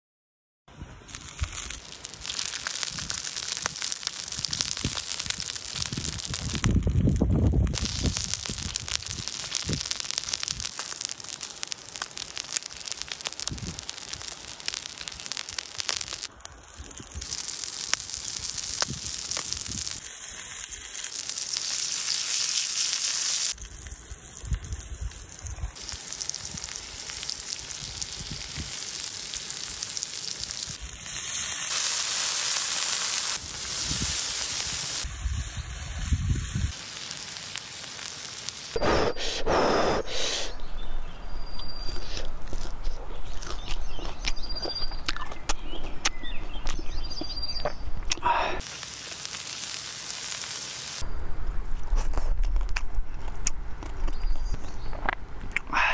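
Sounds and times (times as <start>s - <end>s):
oil sizzling with fish frying: 1.1s - 38.8s, 48.6s - 51.1s.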